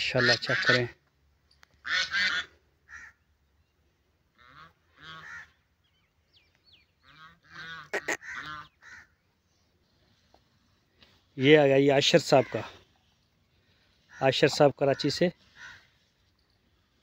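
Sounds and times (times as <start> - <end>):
fowl honking: 0.0 - 1.0, 1.8 - 3.2, 4.3 - 5.6, 7.0 - 9.2, 13.7 - 16.1.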